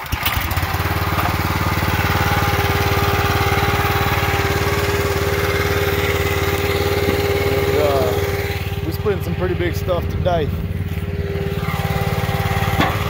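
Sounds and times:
recoil starter pull: 0.0 - 9.3
small gas engine running: 0.0 - 13.0.

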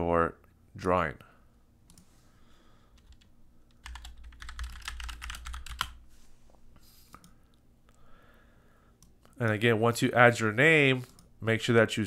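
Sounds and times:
fast keyboard typing: 3.0 - 6.0.

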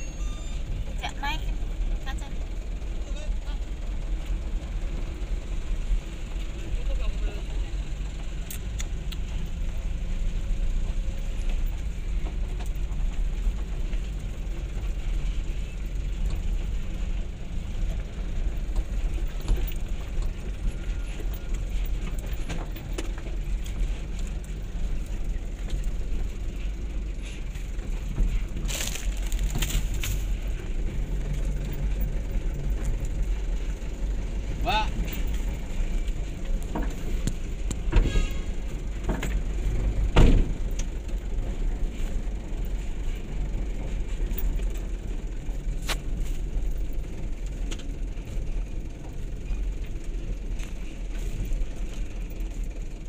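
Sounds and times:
truck engine idling: 0.0 - 53.0
sharp crackles: 28.6 - 30.3.

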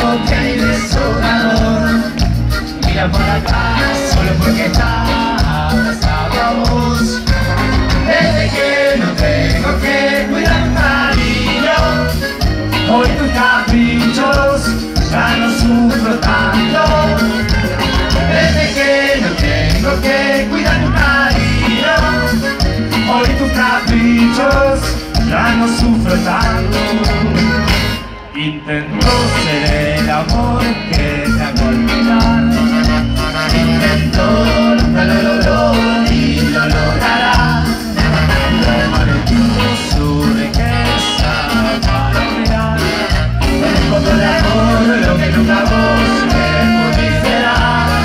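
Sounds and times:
latin dance music: 0.0 - 48.0.

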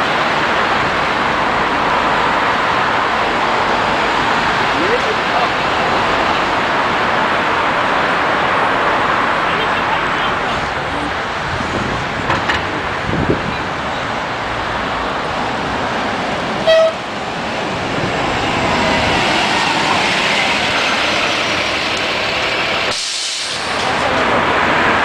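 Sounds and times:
bus diesel engine passing: 0.0 - 25.0
bus horn toot: 16.6 - 17.1.

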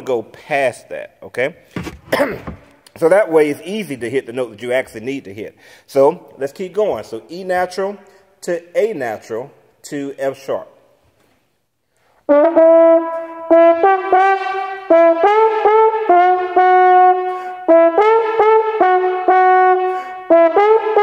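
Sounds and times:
solo trombone notes: 12.3 - 21.0.

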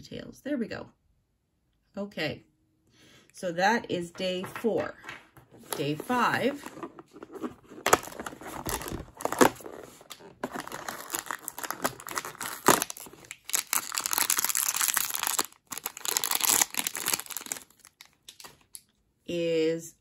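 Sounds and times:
plastic bag crackling and rustling: 5.8 - 18.6.

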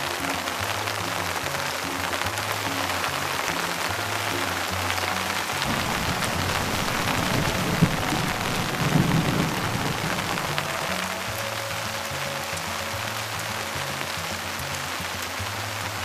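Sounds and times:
rain falling on water: 0.0 - 16.0
thunder rumbling: 4.0 - 12.0
thunder crack: 5.6 - 11.0.

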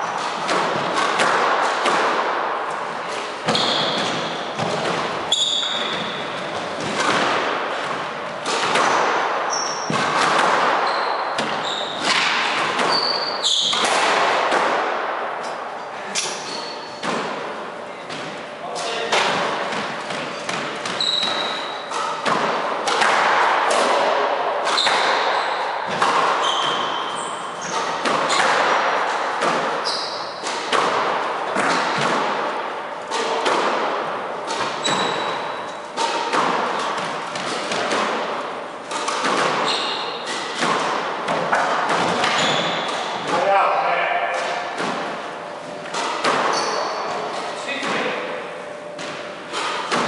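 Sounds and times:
squash ball hitting racquets and walls: 0.0 - 50.0
shoes squeaking on wooden floor: 3.4 - 4.4, 5.3 - 6.4, 10.8 - 12.2, 12.8 - 13.8, 20.3 - 22.1, 26.4 - 28.5, 29.8 - 30.3, 34.8 - 35.5, 39.6 - 40.4, 42.2 - 43.1, 46.4 - 47.6.

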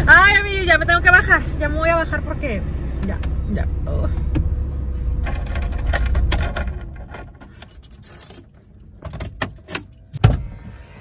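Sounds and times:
car keys jangling: 5.2 - 10.2.

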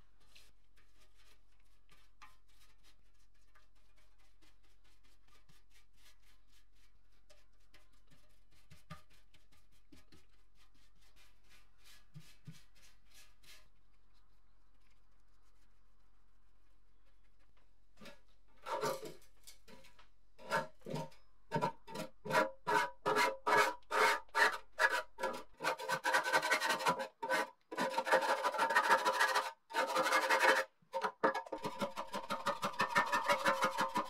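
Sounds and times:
putty knife scraping metal: 18.0 - 19.8, 20.4 - 34.0.

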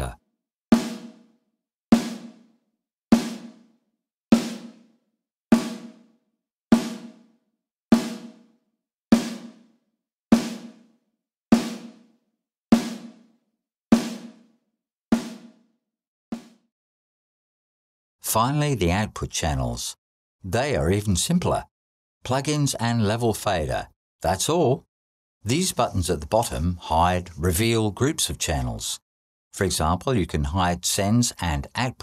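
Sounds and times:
snare drum hits: 0.8 - 1.2, 1.9 - 2.4, 3.1 - 3.6, 4.3 - 4.8, 5.5 - 6.0, 6.7 - 7.2, 8.0 - 8.4, 9.1 - 9.6, 10.4 - 10.7, 11.6 - 11.9, 12.8 - 13.1, 14.0 - 14.3, 15.1 - 15.5, 16.3 - 16.6.

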